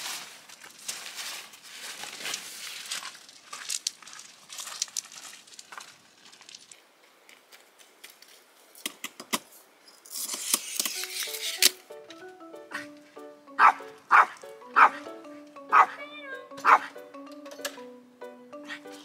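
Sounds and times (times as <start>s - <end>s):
tent fabric rustling: 0.0s - 6.2s.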